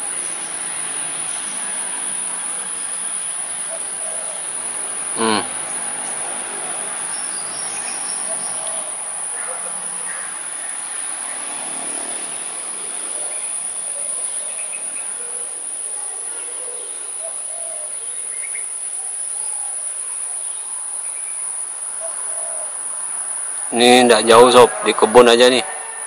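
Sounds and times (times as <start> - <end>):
high-pitched insect trill: 0.0 - 26.0
faint short sounds: 5.2 - 5.6.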